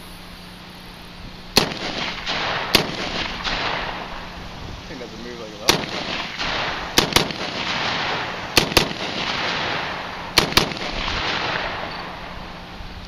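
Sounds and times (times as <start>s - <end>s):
gunshot echo: 1.6s - 4.2s, 5.7s - 12.4s
rifle gunshots: 1.6s - 4.4s, 5.6s - 12.5s.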